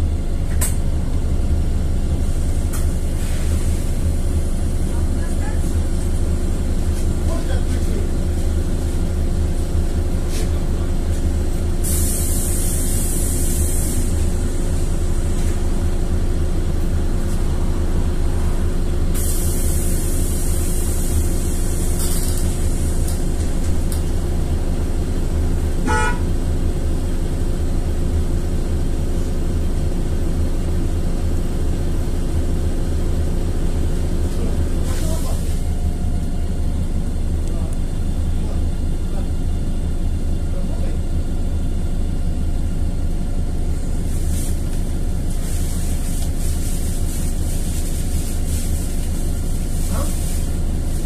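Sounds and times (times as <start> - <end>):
bus engine drone: 0.0 - 51.0
air hiss: 11.8 - 14.3, 19.1 - 22.5.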